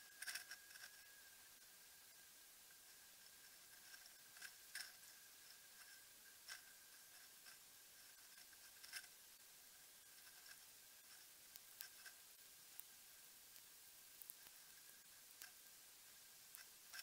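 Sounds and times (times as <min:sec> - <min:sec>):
faint steady hiss: 0:00.0 - 0:17.0
thin high whine: 0:00.0 - 0:17.0
faint sharp clicks: 0:13.5 - 0:15.7.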